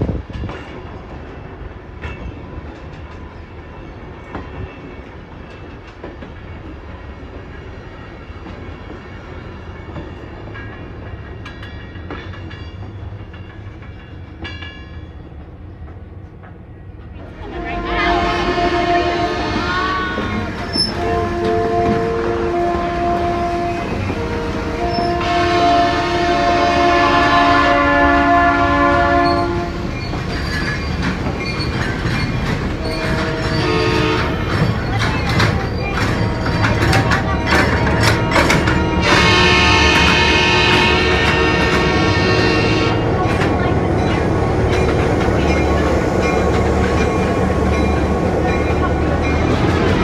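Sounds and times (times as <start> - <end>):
train wheels clicking over rails: 0.0 - 17.5, 28.9 - 50.0
diesel locomotive engine humming: 0.0 - 50.0
locomotive horn chord: 17.4 - 29.8, 33.1 - 34.4, 36.5 - 43.2.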